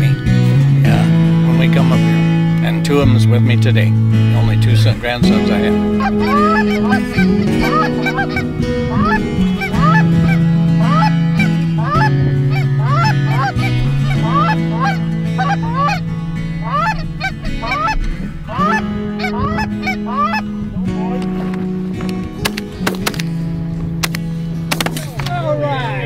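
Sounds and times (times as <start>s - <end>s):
music with held low notes: 0.0s - 26.0s
geese honking: 4.3s - 23.2s.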